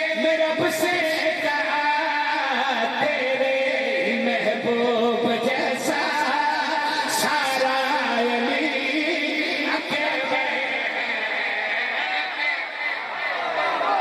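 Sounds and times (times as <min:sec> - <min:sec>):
man singing through microphone: 0:00.0 - 0:12.8.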